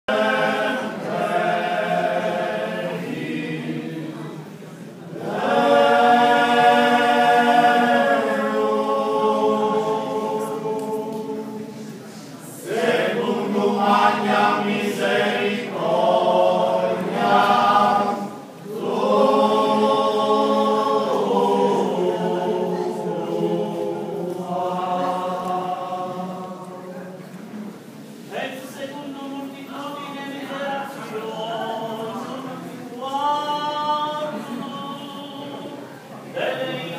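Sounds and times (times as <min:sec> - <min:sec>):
male vocal group singing: 0:05.2 - 0:11.8, 0:12.6 - 0:26.8.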